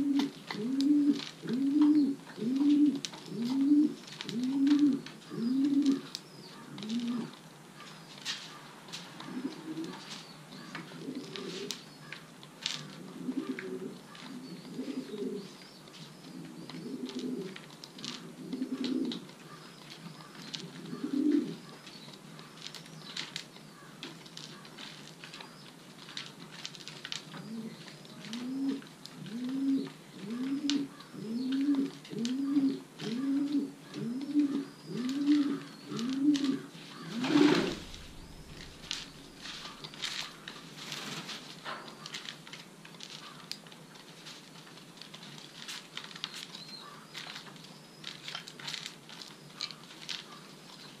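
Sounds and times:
pigeon cooing: 0.0s - 7.9s, 9.2s - 11.8s, 12.7s - 15.6s, 16.2s - 21.9s, 27.4s - 40.7s
light clicks and scratches: 15.9s - 51.0s.

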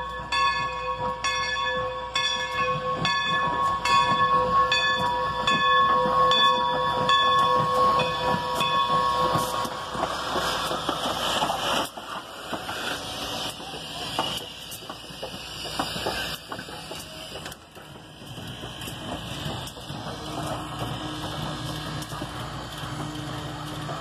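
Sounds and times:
locomotive wheels clanking on rails: 0.0s - 24.0s
steam hissing: 2.7s - 24.0s.

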